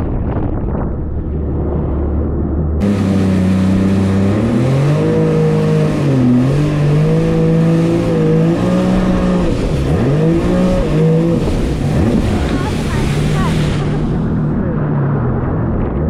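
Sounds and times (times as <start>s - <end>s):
wind and water hiss: 2.8s - 14.6s
jet ski engine revving: 2.8s - 15.4s.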